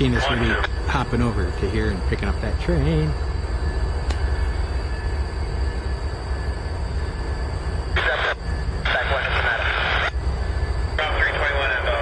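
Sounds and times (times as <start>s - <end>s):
radio scanner noise: 0.0s - 3.2s, 7.9s - 12.0s.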